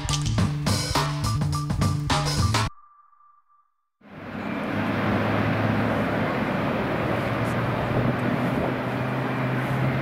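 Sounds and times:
distant jet engines: 0:04.1 - 0:10.0.

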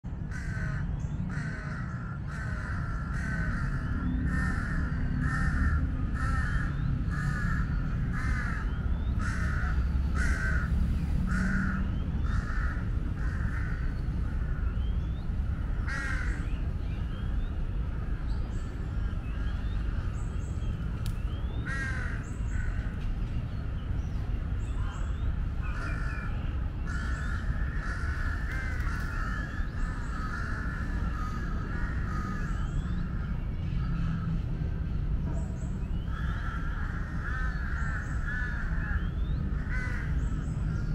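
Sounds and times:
crow cawing: 0:00.3 - 0:14.6, 0:15.6 - 0:16.5, 0:21.6 - 0:23.0, 0:25.7 - 0:33.2, 0:36.1 - 0:40.2
small birds chirping: 0:00.4 - 0:40.9.

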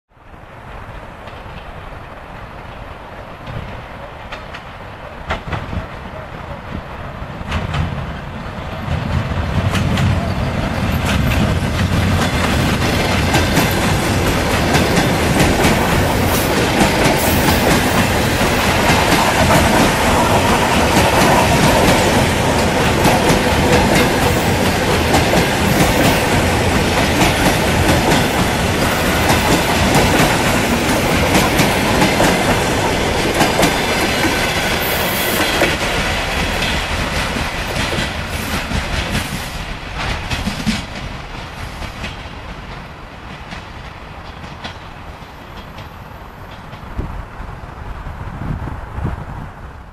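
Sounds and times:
train wheels clattering over rails: 0:03.2 - 0:47.2.

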